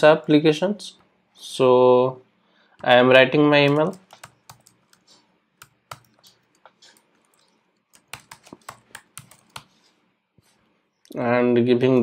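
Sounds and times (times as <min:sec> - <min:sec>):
computer keyboard typing: 0:03.6 - 0:09.8.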